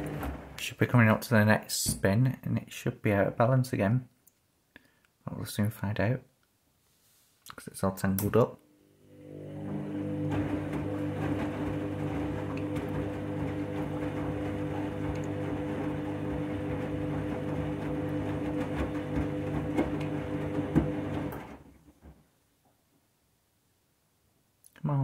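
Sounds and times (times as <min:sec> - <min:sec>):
washing machine motor hum: 0:00.0 - 0:00.6, 0:08.8 - 0:21.7.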